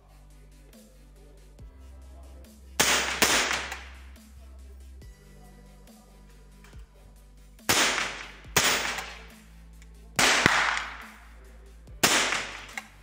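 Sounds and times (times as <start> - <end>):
rifle shots with echo: 2.8 - 3.9, 7.7 - 9.3, 10.2 - 11.2, 12.0 - 12.9.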